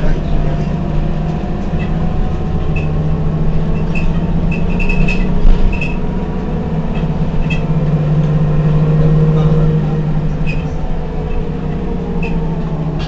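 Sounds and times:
bus diesel engine idling: 0.0 - 13.0
short high squeaks: 3.8 - 6.0, 10.4 - 11.4, 12.2 - 12.5.

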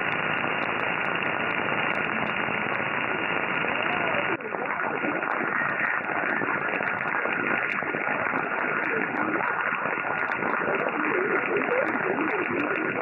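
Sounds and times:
radio static hiss: 0.0 - 13.0
faint radio voice: 3.7 - 13.0.

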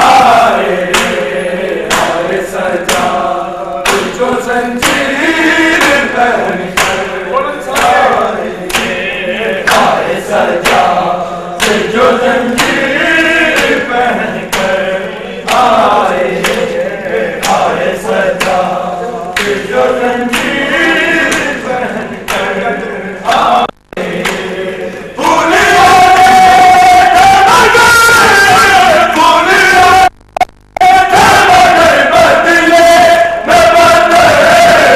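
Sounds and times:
men chanting in chorus: 0.0 - 30.1, 30.8 - 34.9
hand slaps on bare chests: 0.9 - 1.3, 1.9 - 2.2, 3.8 - 4.2, 4.8 - 5.1, 6.8 - 7.0, 8.7 - 9.0, 11.6 - 11.8, 17.4 - 17.7, 18.4 - 18.6.

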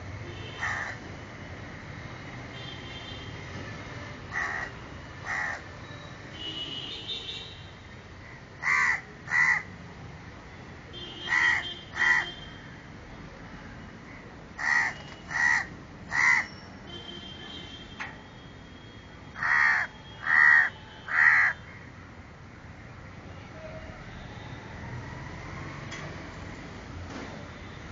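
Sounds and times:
crow cawing: 0.6 - 1.0, 4.3 - 5.6, 8.6 - 9.7, 11.3 - 12.3, 14.6 - 16.5, 19.4 - 21.8.

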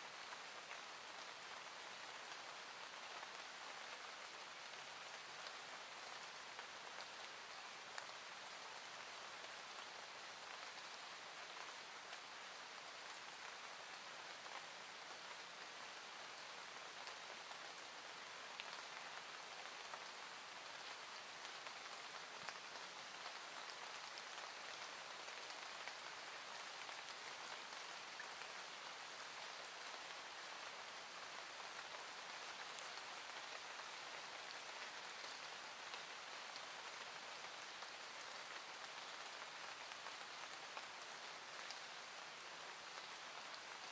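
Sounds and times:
rain falling: 0.0 - 43.9.

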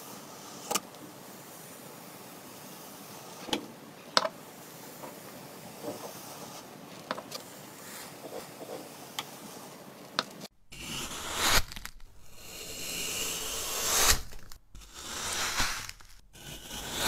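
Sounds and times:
metal scoop scraping sand: 0.0 - 0.9, 10.7 - 17.0
steady hiss: 0.0 - 17.0.

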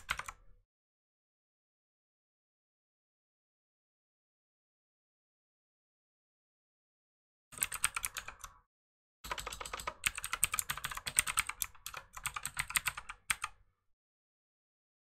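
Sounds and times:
typing on computer keyboard: 0.0 - 0.4, 7.6 - 8.6, 9.3 - 13.6.

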